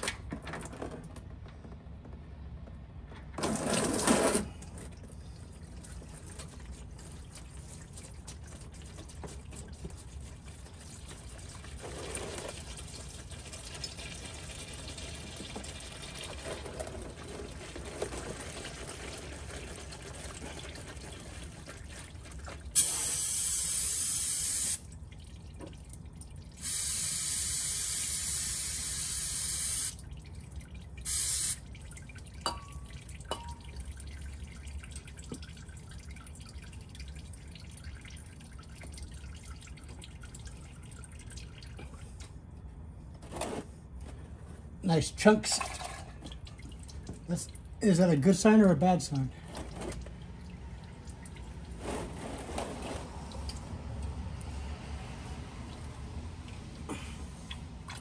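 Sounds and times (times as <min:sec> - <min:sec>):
oil pouring into drain pan: 0:03.4 - 0:42.2, 0:45.4 - 0:47.8
aerosol spray hissing: 0:26.6 - 0:29.9, 0:31.1 - 0:31.6.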